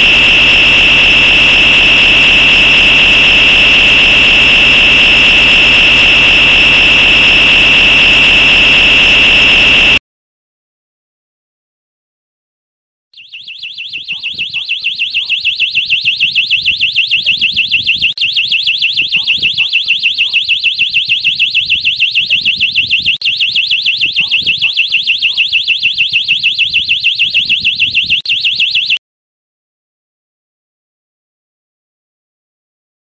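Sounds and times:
electronic siren warbling: 0:00.0 - 0:10.0, 0:13.2 - 0:29.0.

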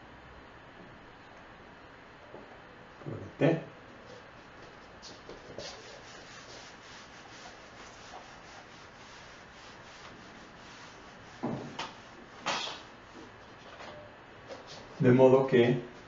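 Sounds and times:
eraser rubbing on whiteboard: 0:05.1 - 0:13.3
knock: 0:11.4 - 0:11.8.

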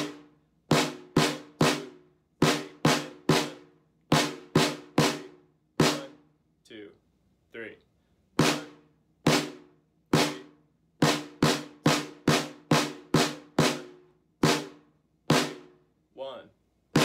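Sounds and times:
snare drum strokes: 0:00.0 - 0:06.2, 0:08.4 - 0:15.8.

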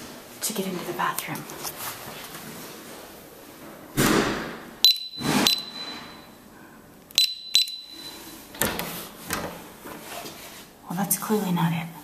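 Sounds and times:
keypad button clicks: 0:04.8 - 0:06.0, 0:07.1 - 0:08.2
keypad beeps: 0:04.8 - 0:06.3, 0:07.2 - 0:08.4.

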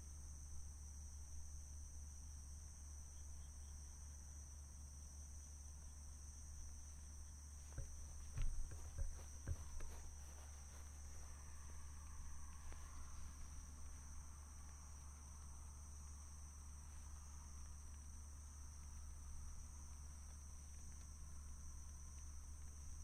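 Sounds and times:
insects trilling: 0:00.0 - 0:23.0
knocks and thumps: 0:07.7 - 0:10.5.

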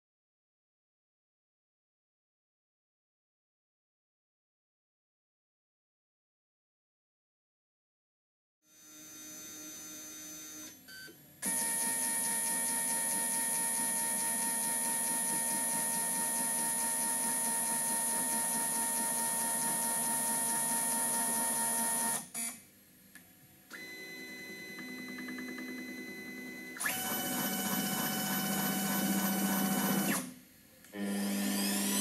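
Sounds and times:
stepper motor whine: 0:23.8 - 0:30.3.

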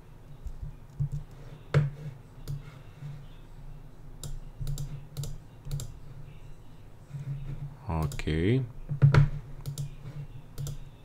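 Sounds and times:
mouse and keyboard clicks: 0:00.4 - 0:02.7, 0:04.2 - 0:06.0, 0:08.9 - 0:10.9.

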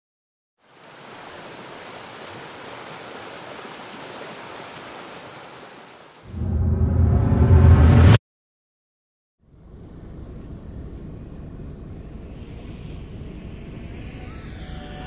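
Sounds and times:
waterfall rushing: 0:00.7 - 0:06.1
deep bass boom: 0:06.3 - 0:08.2.

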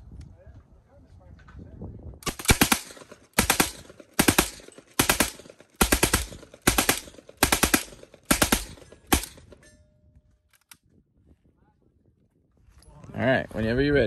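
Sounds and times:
submachine gun bursts: 0:02.2 - 0:09.6.

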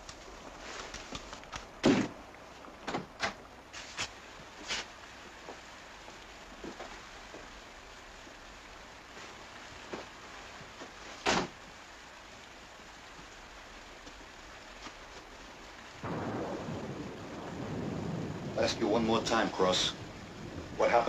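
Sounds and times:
rain hissing: 0:00.0 - 0:21.0
faint knocks and rustles: 0:06.6 - 0:07.6.

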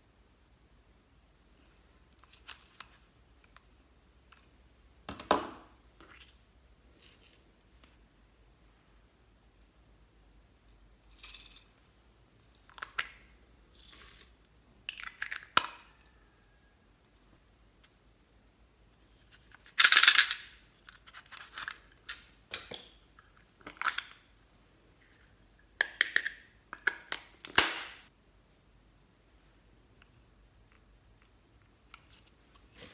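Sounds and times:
beads rattling in plastic containers: 0:13.7 - 0:15.5, 0:19.7 - 0:21.8.

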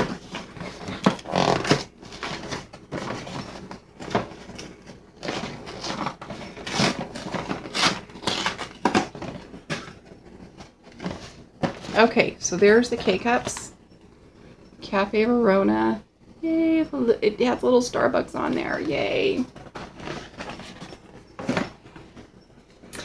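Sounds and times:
cardboard box tearing and crinkling: 0:00.1 - 0:03.4, 0:05.2 - 0:09.9.

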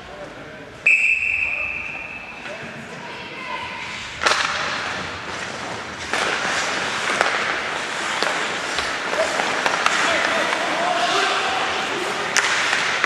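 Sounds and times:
skate blades scraping ice: 0:03.8 - 0:13.0
hockey stick clacking puck: 0:04.2 - 0:13.0.

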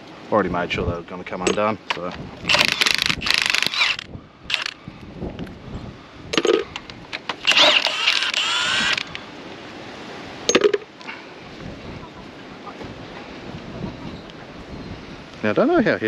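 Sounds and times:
impact wrench bursts: 0:02.5 - 0:04.8, 0:07.4 - 0:09.2.

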